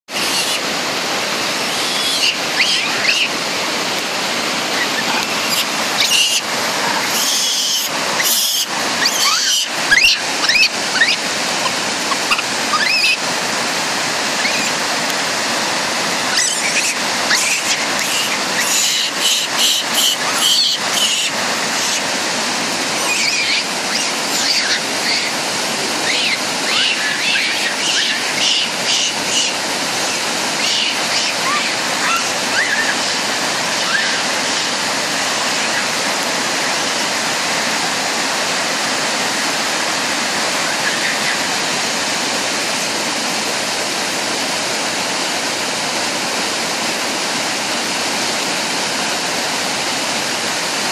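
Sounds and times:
river and waterfall rushing: 0:00.1 - 0:50.9
high-pitched calls and squeaks: 0:01.6 - 0:03.3, 0:04.8 - 0:11.2, 0:12.1 - 0:13.2, 0:16.3 - 0:22.0, 0:23.0 - 0:25.3.

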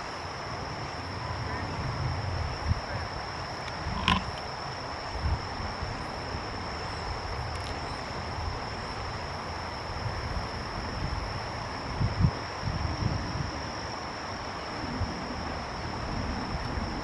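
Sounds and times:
continuous hiss: 0:00.0 - 0:17.0.

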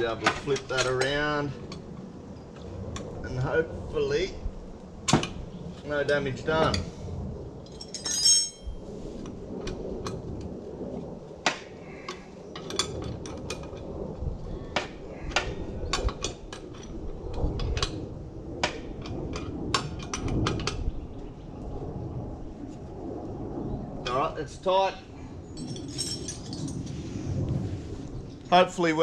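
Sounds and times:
ringing metal clink: 0:07.7 - 0:08.8, 0:25.6 - 0:26.8.

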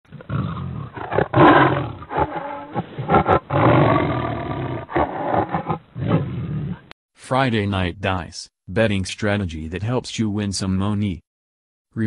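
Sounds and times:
tiger roaring and growling: 0:00.1 - 0:06.9.

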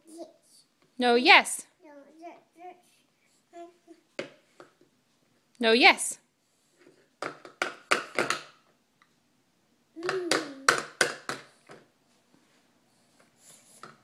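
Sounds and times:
toddler vocal sound: 0:01.8 - 0:04.1, 0:10.0 - 0:11.0.

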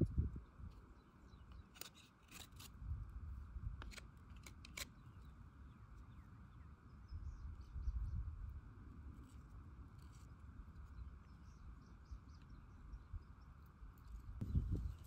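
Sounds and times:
clicks and scrapes on wooden shaft: 0:01.5 - 0:02.8, 0:03.8 - 0:05.0.

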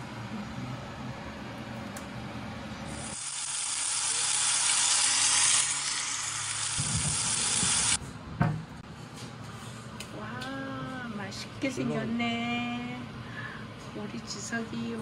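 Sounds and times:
steady low hum: 0:00.0 - 0:04.3, 0:05.0 - 0:15.0
steak sizzling in a pan: 0:03.0 - 0:08.0.

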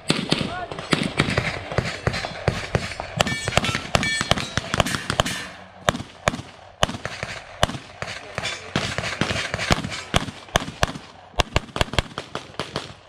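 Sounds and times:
rapid pistol fire: 0:00.0 - 0:13.0
steel targets ringing: 0:01.9 - 0:05.8.

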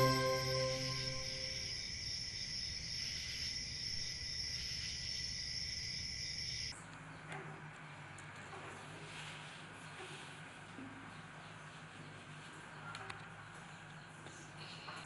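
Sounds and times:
crickets chirring: 0:00.0 - 0:06.7.

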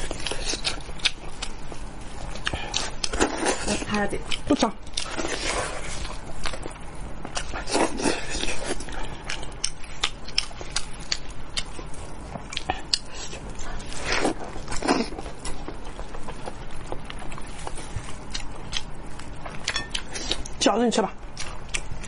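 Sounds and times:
close-up chewing and lip smacks: 0:06.0 - 0:20.6, 0:21.3 - 0:22.0.

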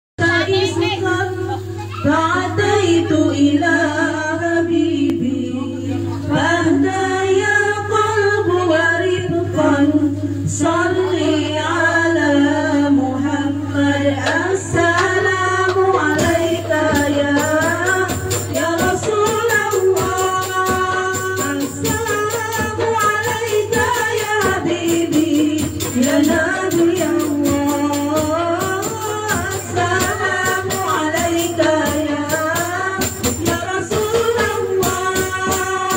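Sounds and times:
women singing devotional song: 0:00.2 - 0:35.9
frame drums: 0:13.2 - 0:35.9
jingling percussion rhythm: 0:14.3 - 0:35.9.

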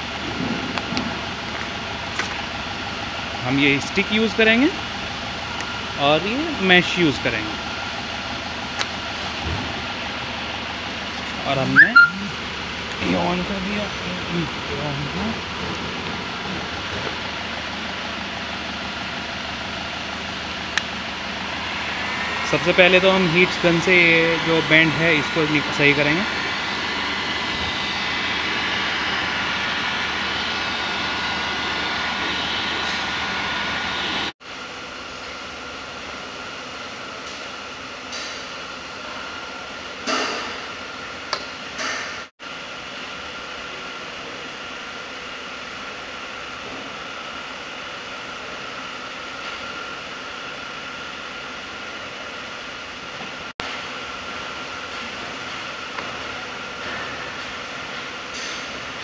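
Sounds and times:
heat gun fan blowing air: 0:12.7 - 0:34.3.

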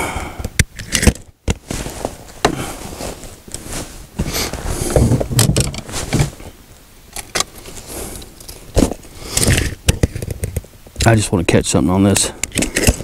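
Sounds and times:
fishing gear rustling: 0:00.9 - 0:10.3
fishing gear knocks and clicks: 0:04.9 - 0:06.4, 0:12.4 - 0:13.0.

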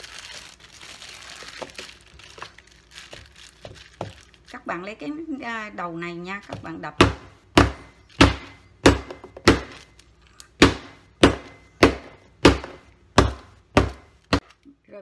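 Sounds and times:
mallet whacking on cutting board: 0:06.5 - 0:09.8, 0:10.6 - 0:14.1.

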